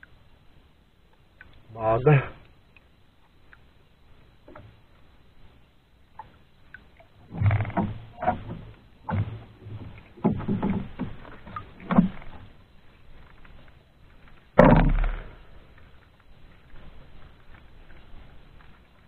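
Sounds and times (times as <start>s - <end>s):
knocks against wooden boat: 7.3s - 12.3s, 14.6s - 15.3s
heavy thud: 14.6s - 15.3s.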